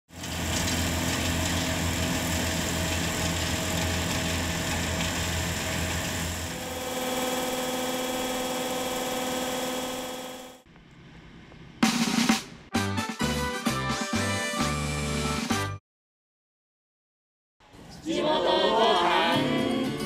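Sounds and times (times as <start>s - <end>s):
combine harvester rumbling hum: 0.2s - 10.4s.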